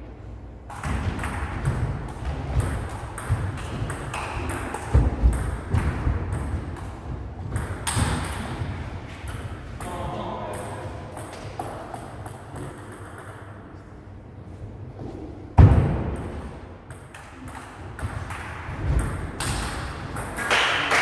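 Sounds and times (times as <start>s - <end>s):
heavy thumps: 0.8s - 9.8s.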